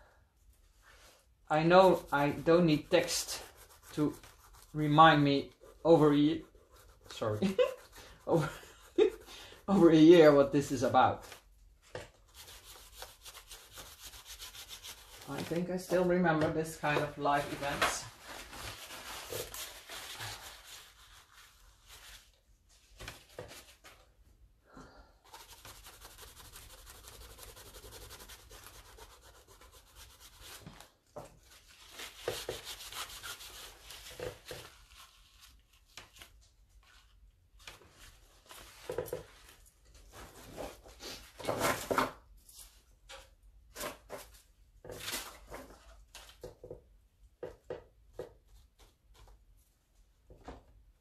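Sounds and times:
hands rubbing paper: 0:00.9 - 0:09.9, 0:12.2 - 0:22.4, 0:25.2 - 0:38.8.

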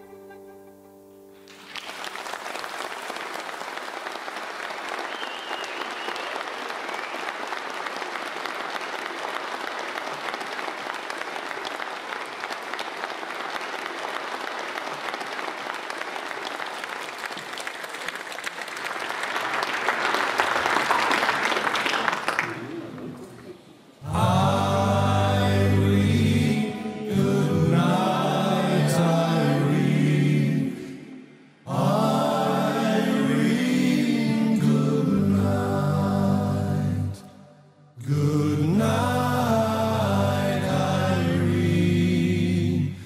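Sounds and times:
audience applauding: 0:01.4 - 0:26.4.

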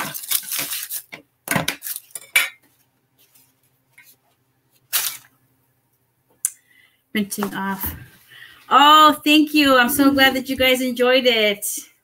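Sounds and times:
dishes and utensils clattering: 0:01.5 - 0:02.7.

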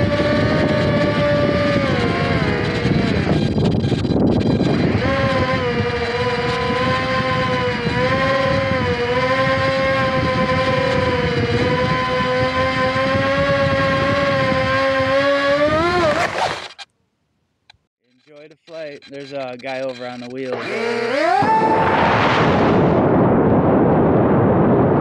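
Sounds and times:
model plane electric motor whining: 0:00.0 - 0:16.9, 0:19.1 - 0:22.1.

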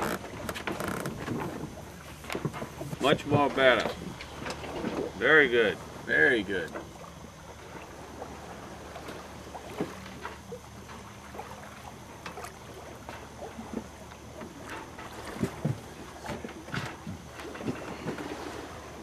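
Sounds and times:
faint clicks and creaks: 0:00.0 - 0:05.1
water washing along hull: 0:00.0 - 0:19.0.

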